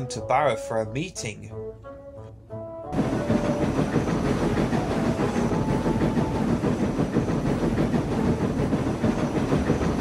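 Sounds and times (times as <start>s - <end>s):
train clattering rumble: 2.9s - 10.0s.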